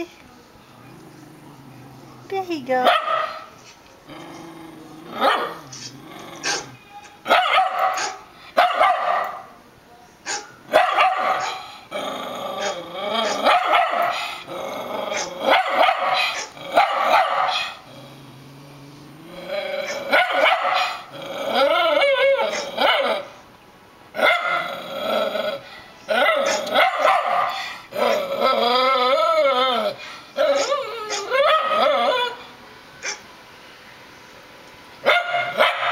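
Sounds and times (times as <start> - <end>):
dog barking and growling: 0.8 - 9.5, 10.3 - 23.4, 24.1 - 32.4, 33.0 - 33.2, 35.0 - 35.9
dog barking through speakers: 2.8 - 3.5, 5.2 - 5.6, 6.4 - 9.5, 10.2 - 11.6, 12.6 - 14.2, 15.1 - 17.8, 19.8 - 21.1, 22.1 - 23.3, 24.2 - 24.7, 26.2 - 27.6, 30.5 - 32.4, 33.0 - 33.3, 35.0 - 35.9.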